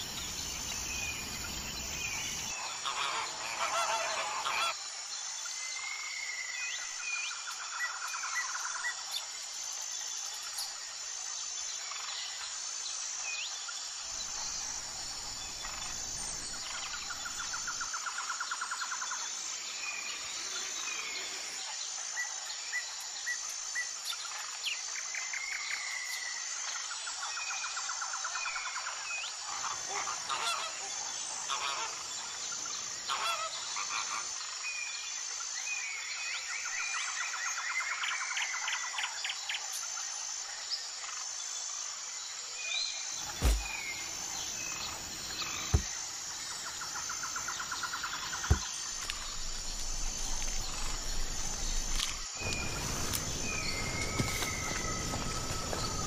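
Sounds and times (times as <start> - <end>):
birds chirping and trilling: 14.0 - 21.5, 43.2 - 56.0
sharp knocks: 48.4 - 49.2.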